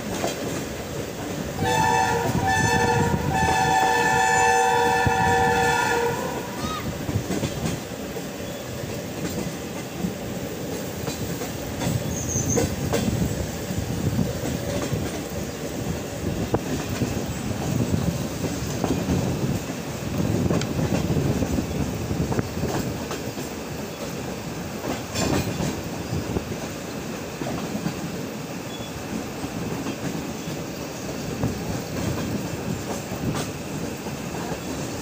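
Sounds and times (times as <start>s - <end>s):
train rumble: 0.0s - 35.0s
locomotive horn: 1.6s - 6.9s
wheel clatter on rails: 24.8s - 25.9s.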